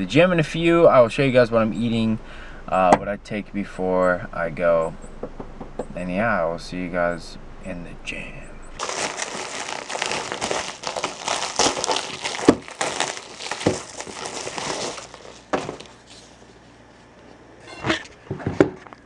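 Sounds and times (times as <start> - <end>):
plastic envelope tearing and crinkling: 8.8 - 16.4.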